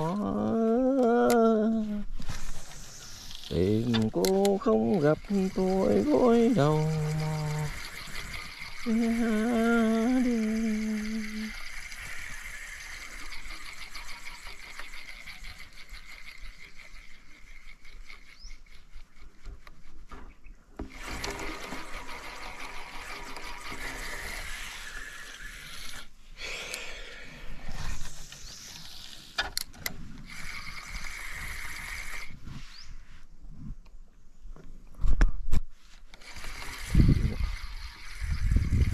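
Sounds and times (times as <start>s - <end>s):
sharp clicks: 3.1s - 12.2s.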